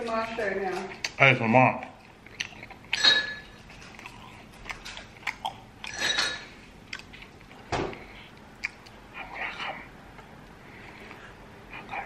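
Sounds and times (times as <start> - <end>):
chewing fried chicken: 0.9 - 3.0, 3.6 - 12.0
wet mouth clicks: 2.2 - 3.0, 4.0 - 6.0, 8.3 - 9.7.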